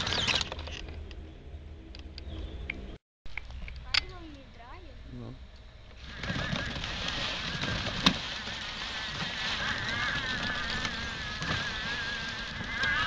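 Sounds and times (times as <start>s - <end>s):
wavering whine: 5.1s - 13.0s.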